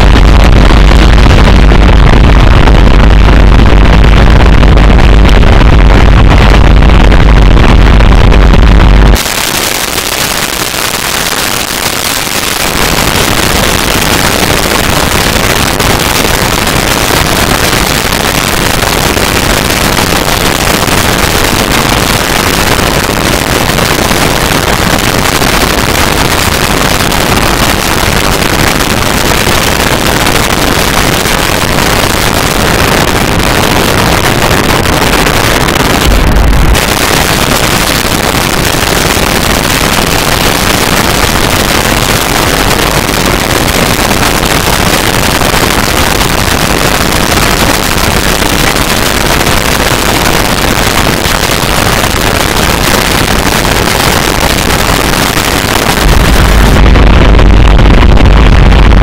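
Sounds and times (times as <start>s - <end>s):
deep bass layer: 0.0s - 43.8s, 56.0s - 59.0s
harsh electronic noise: 0.0s - 59.0s.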